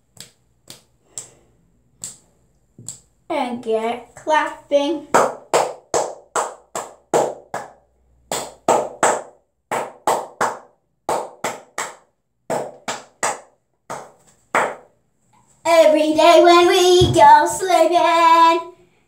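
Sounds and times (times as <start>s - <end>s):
child clapping hands: 5.1s - 14.8s.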